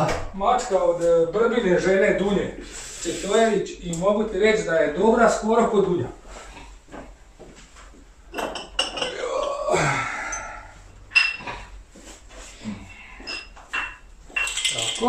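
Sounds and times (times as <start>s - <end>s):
person muttering: 9.0s - 10.6s
hard objects clinking: 13.3s - 15.0s.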